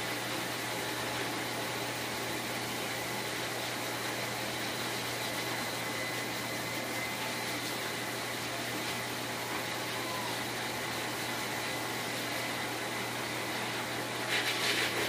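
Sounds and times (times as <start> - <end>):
blower dryer rushing air: 0.0 - 15.0
thin steady whine: 0.0 - 15.0.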